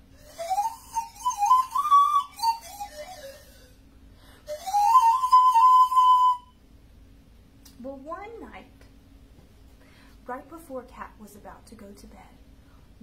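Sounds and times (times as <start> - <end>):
panpipes breathy tune: 0.1 - 6.5.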